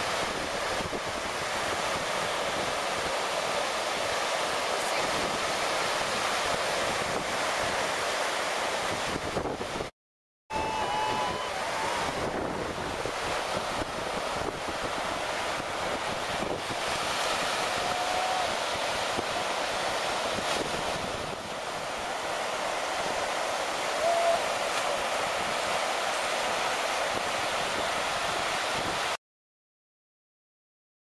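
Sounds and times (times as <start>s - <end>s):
surf breaking on beach: 0.0s - 9.9s, 10.5s - 29.2s
wind buffeting microphone: 10.5s - 22.2s.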